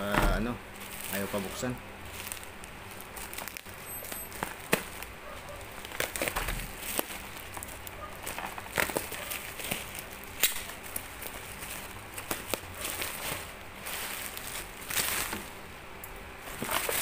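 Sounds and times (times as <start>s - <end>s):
bubble wrap crinkling: 0.0s - 17.0s.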